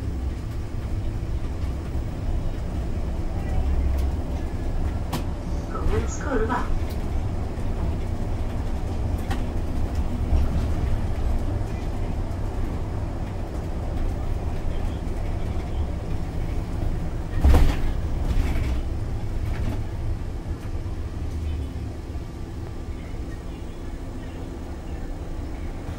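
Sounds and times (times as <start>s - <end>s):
bus engine and tyres rumbling: 0.0s - 25.9s.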